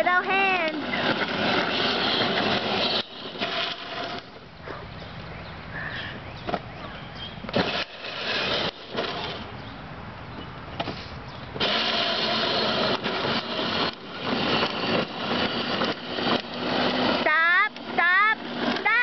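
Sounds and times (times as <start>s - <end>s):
plastic wheels rumbling on pavement: 0.0s - 4.5s, 5.8s - 9.7s, 10.4s - 19.0s
toy car electric motor whirring: 0.3s - 4.4s, 7.5s - 9.5s, 11.6s - 19.0s.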